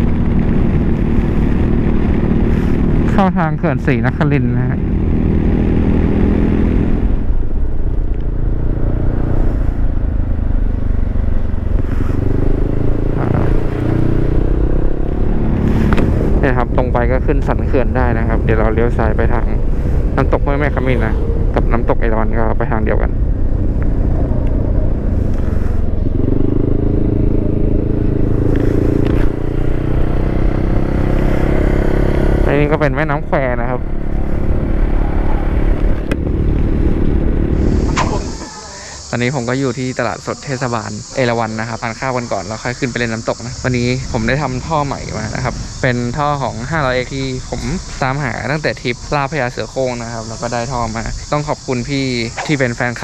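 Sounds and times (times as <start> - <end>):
motorcycle engine running: 0.0 - 53.0
wind and road noise: 0.0 - 53.0.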